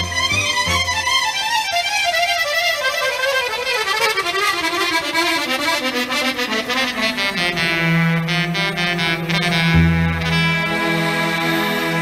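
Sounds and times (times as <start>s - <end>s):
button accordion playing: 0.0s - 12.0s.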